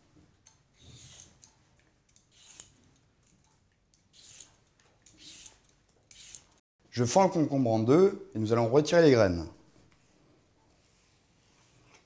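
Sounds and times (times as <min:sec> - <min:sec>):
peeler scraping cucumber: 0:04.1 - 0:06.5.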